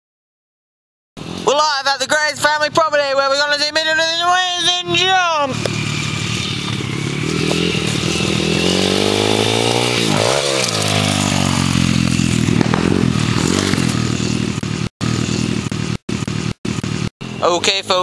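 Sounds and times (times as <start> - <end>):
motorbike engine revving: 3.9 - 18.0.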